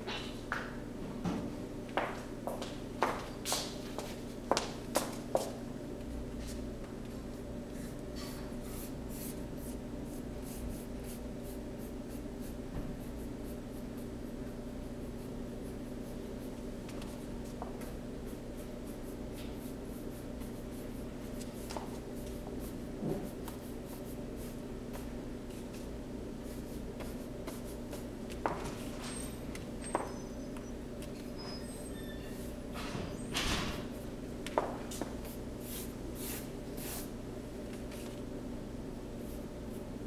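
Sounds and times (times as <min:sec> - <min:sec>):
paintbrush swishing on cardboard: 0:34.9 - 0:37.1.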